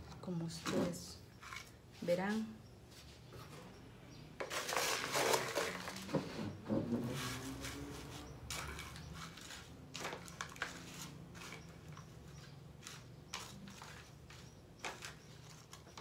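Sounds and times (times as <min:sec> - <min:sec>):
gritty substrate rustling in plastic bowl: 0:07.1 - 0:16.0.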